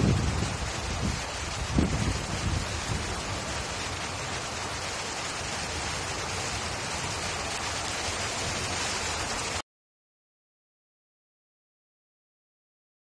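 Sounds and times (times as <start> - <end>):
heavy rain: 0.0 - 9.6
wind rumble on microphone: 0.0 - 9.6.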